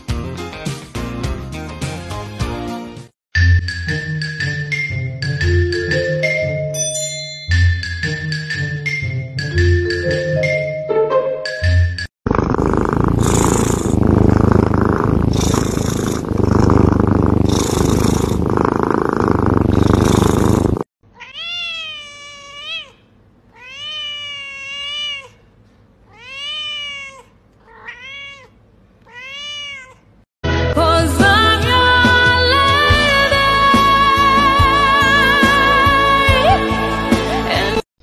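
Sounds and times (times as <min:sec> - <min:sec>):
cat purring: 0:12.3 - 0:20.9
cat meowing: 0:21.2 - 0:25.4, 0:26.1 - 0:30.1.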